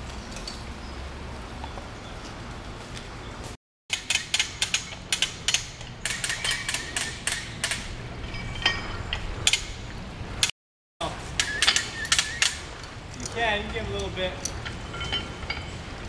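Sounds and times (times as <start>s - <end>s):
winch ratchet clicking: 3.9s - 7.9s, 11.4s - 13.4s.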